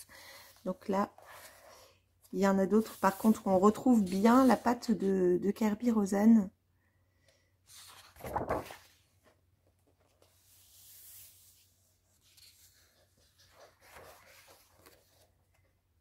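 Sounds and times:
book pages turning: 7.7s - 11.4s, 12.2s - 15.7s.

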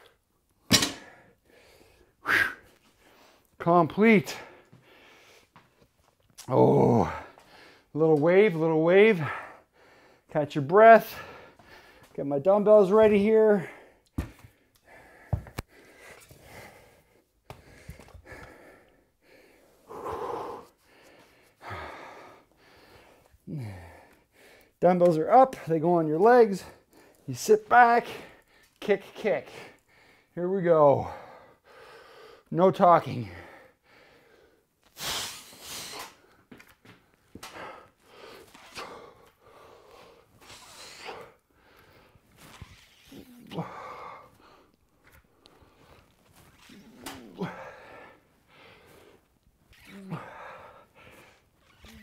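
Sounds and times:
dumbbells clanking: 0.7s - 1.2s
man breathing hard: 0.8s - 3.5s, 4.3s - 5.8s, 7.0s - 7.9s, 9.2s - 10.3s, 11.0s - 12.2s, 13.5s - 24.8s, 29.5s - 30.4s, 31.0s - 32.5s, 33.2s - 42.3s, 43.5s - 46.2s, 47.2s - 49.4s, 50.1s - 51.5s.

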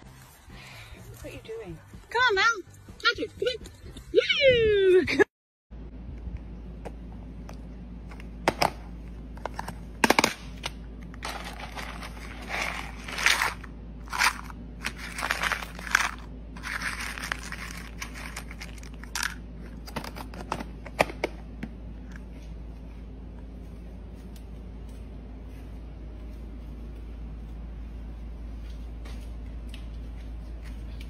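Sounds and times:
steady low hum: 0.0s - 31.0s
kibble rattling against plastic: 11.2s - 20.1s.

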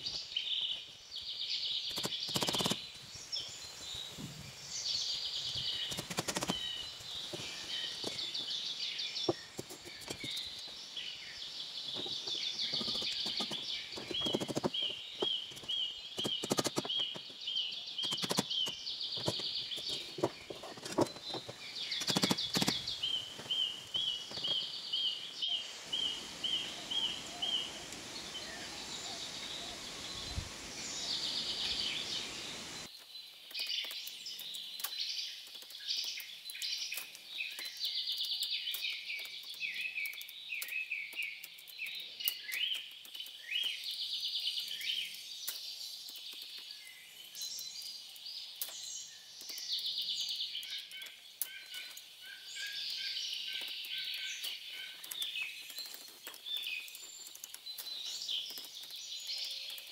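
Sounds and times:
bird repeated chirp: 1.5s - 4.2s, 4.9s - 33.0s.

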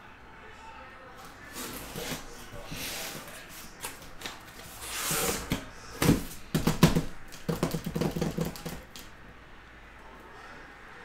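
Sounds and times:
cardboard flaps rustling: 1.2s - 9.0s
cardboard knocks and scrapes: 1.5s - 8.8s.

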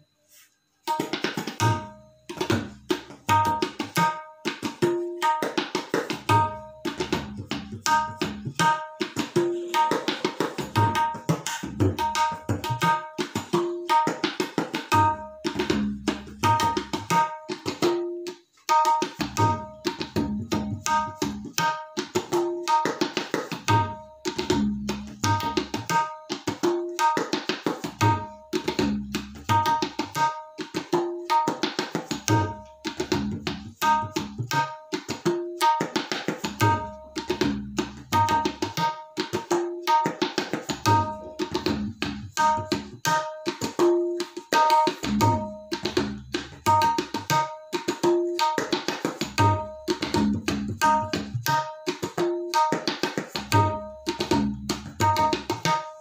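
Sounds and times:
tabla ringing strokes: 0.0s - 56.0s
tabla deep bass strokes: 1.6s - 4.2s, 6.2s - 8.8s, 10.6s - 14.0s, 14.9s - 18.0s, 19.2s - 21.6s, 23.6s - 26.2s, 27.8s - 30.4s, 32.2s - 34.7s, 36.4s - 38.8s, 40.7s - 43.3s, 44.6s - 47.4s, 49.2s - 51.7s, 53.4s - 55.8s.

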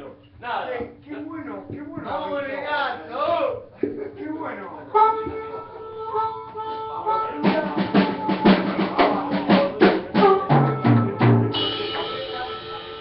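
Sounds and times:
drum kit fill: 7.3s - 13.0s
held note ringing: 9.2s - 13.0s.

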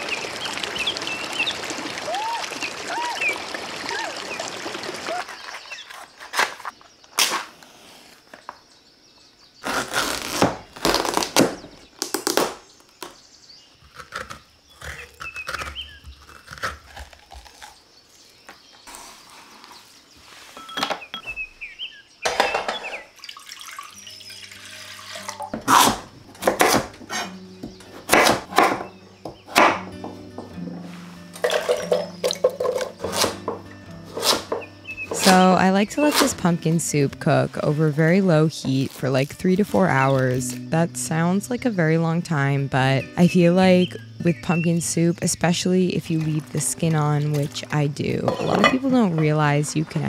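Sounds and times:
soft music with low notes: 23.9s - 50.0s
knife cutting pumpkin on board: 25.6s - 28.9s, 34.1s - 36.4s.

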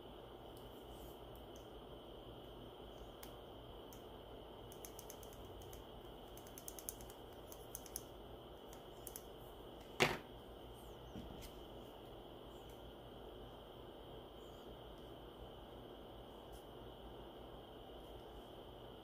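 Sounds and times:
tweezers clicking on plastic: 4.7s - 9.3s.

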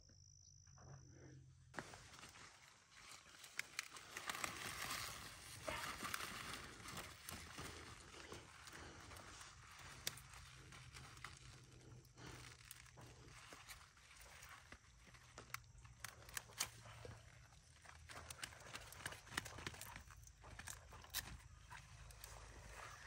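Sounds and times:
rustling and handling noises: 1.7s - 23.0s.

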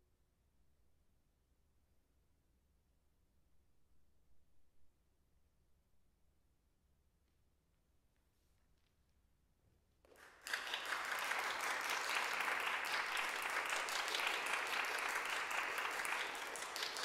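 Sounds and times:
audience applause: 10.1s - 17.0s.

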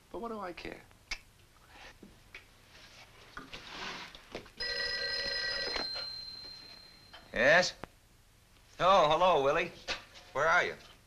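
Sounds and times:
soft rustle: 2.6s - 4.1s
desk telephone bell ringing: 4.6s - 7.3s.

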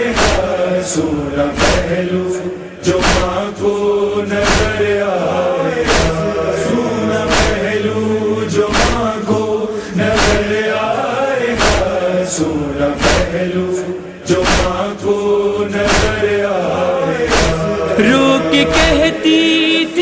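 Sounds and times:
chorus chanting a slow lament: 0.0s - 20.0s
steady struck beat: 5.6s - 7.8s, 17.3s - 19.2s.

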